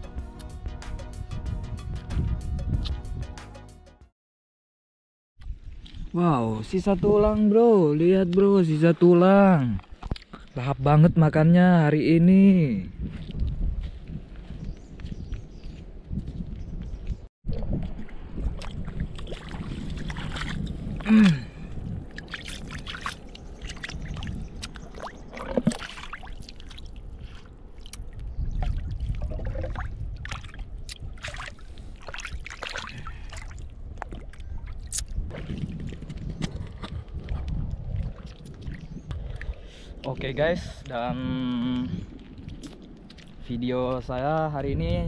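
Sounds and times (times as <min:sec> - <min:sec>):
water sloshing and lapping: 0:17.5 - 0:43.5.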